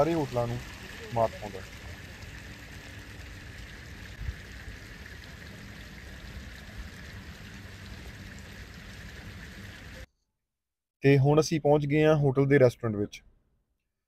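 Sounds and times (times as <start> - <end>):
fountain water splashing: 0.0 - 10.1.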